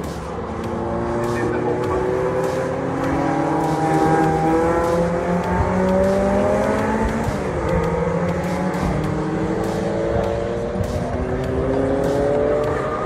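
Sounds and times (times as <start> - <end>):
race car engines accelerating: 0.0 - 13.0.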